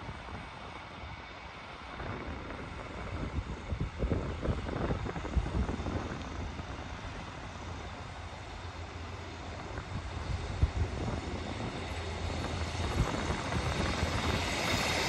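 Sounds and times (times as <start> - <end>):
train engine drone: 0.0 - 15.0
wind buffeting microphone: 0.0 - 15.0.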